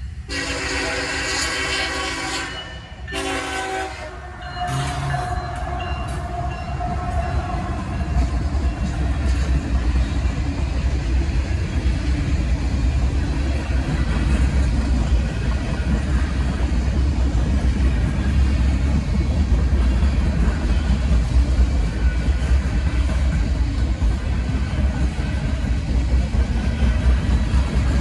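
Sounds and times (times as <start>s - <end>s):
train wheels rumbling on rail: 0.0s - 28.0s.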